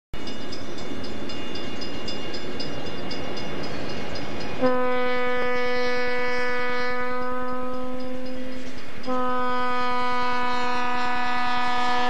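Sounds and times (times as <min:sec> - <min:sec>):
diesel locomotive engine rumble: 0:00.2 - 0:12.0
train air horn blast: 0:04.6 - 0:12.0.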